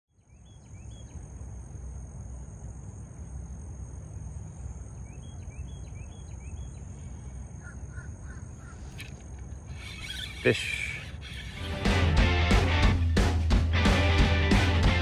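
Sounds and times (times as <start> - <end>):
bird chirps: 0.1 - 1.3, 4.8 - 11.8
insects droning: 0.1 - 13.2.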